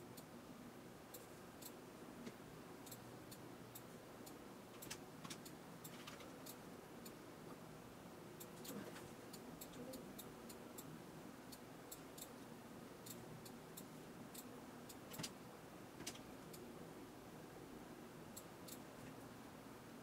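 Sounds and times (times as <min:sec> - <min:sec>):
faint room hum: 0:00.0 - 0:20.0
computer mouse clicks: 0:04.8 - 0:06.6, 0:13.8 - 0:15.4, 0:16.0 - 0:16.6.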